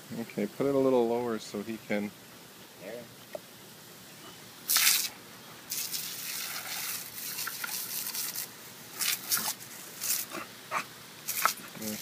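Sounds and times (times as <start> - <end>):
water splashing: 4.6 - 12.0
water spraying from hose: 4.6 - 12.0.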